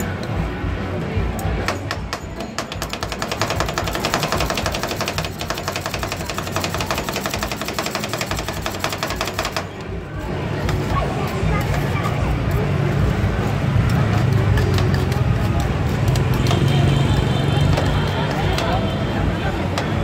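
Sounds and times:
metal spatulas chopping on pan: 1.6 - 9.9, 13.4 - 16.7.

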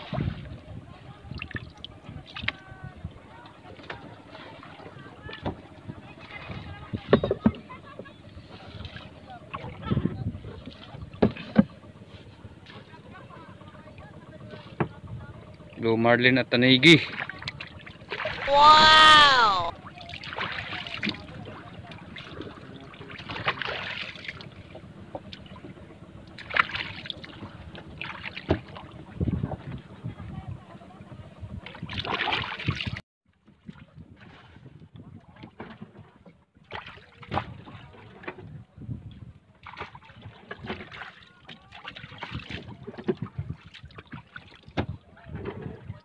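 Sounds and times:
water lapping against boat hull: 0.0 - 16.0, 16.6 - 46.0
loud splashes: 18.1 - 21.1.

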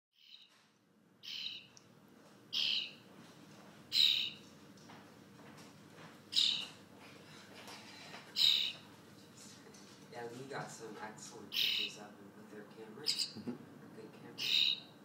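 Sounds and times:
starling harsh calls: 1.2 - 1.7, 2.5 - 3.0, 3.9 - 4.4, 6.3 - 6.7, 8.3 - 8.8, 11.5 - 12.0, 13.0 - 13.4, 14.4 - 15.0.

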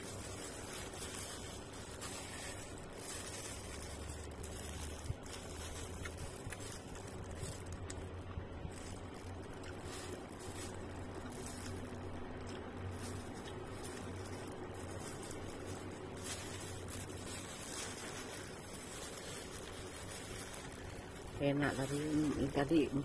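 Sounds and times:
low steady hum: 0.0 - 23.0
plastic glove squishing food: 0.0 - 23.0.

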